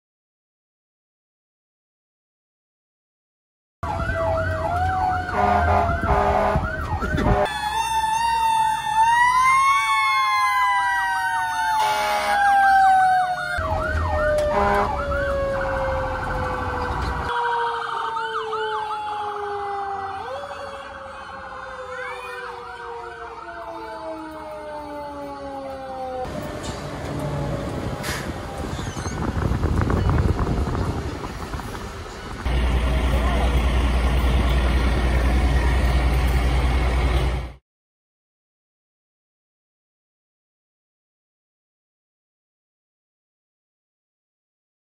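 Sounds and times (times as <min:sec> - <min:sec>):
fire engine sirens: 0:03.8 - 0:37.6.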